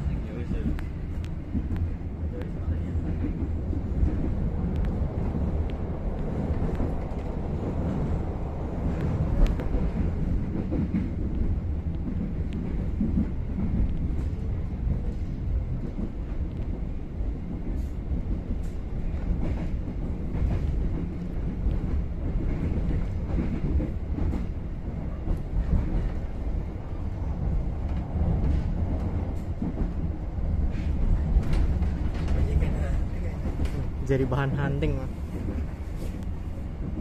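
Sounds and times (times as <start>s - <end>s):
passenger train rumble: 0.0s - 37.0s
faint clicks: 4.7s - 5.0s.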